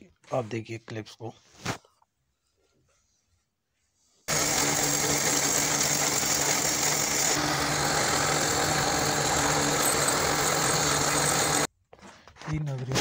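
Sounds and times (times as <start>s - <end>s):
boring machine motor hum: 4.3s - 11.7s.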